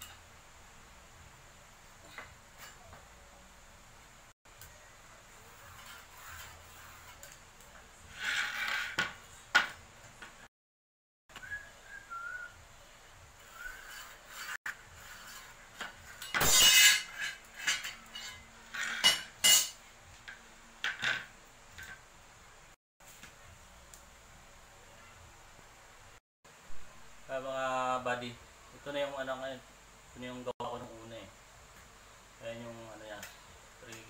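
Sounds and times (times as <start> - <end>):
metal tools clattering on concrete: 15.8 - 19.8, 20.8 - 22.0.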